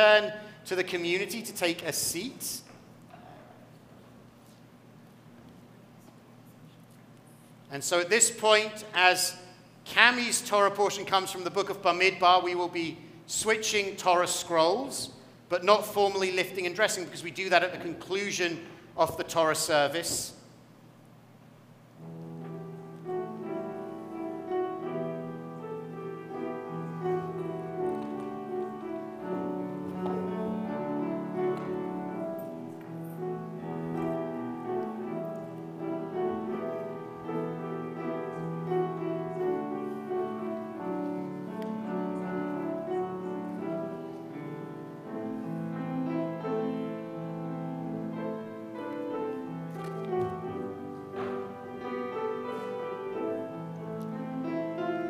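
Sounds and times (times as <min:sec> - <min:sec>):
calm piano music: 0:00.0 - 0:02.6, 0:21.9 - 0:55.0.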